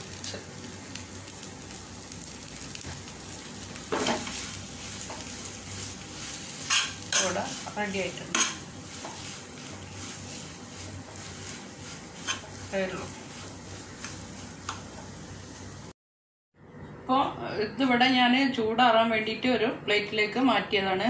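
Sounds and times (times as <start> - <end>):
light sizzle of frying: 0.0 - 16.0
spoon scraping frying pan: 3.9 - 15.1.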